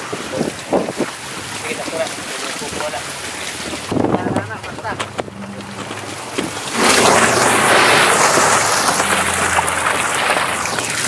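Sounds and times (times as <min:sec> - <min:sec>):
boat engine humming: 0:00.0 - 0:11.0
fish and water splashing into box: 0:05.6 - 0:11.0.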